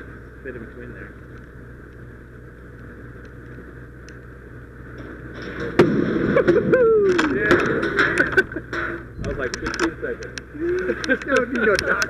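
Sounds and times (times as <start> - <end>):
voices: 0.0 - 5.0, 6.3 - 12.0
engine hum: 0.0 - 12.0
metal clack and clatter: 5.0 - 10.4.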